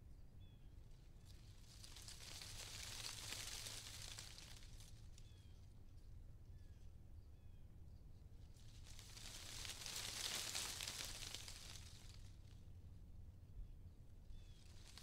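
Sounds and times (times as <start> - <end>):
low steady rumble: 0.0 - 15.0
wind rustling leaves: 1.0 - 5.5, 8.4 - 12.7, 14.3 - 15.0
faint bird chirps: 5.2 - 8.2, 14.3 - 15.0.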